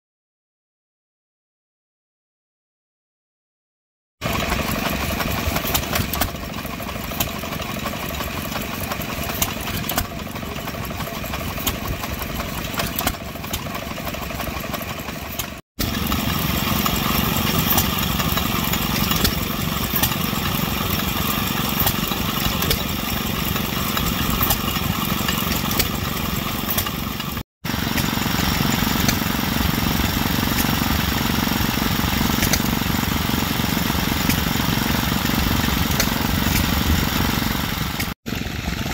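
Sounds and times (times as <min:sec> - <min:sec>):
stationary engines running: 0:04.2 - 0:38.9.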